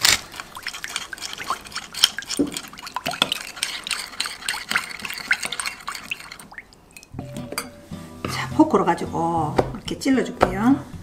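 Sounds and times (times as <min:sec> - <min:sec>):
spoon clinking against glass bowl: 0:02.4 - 0:07.9.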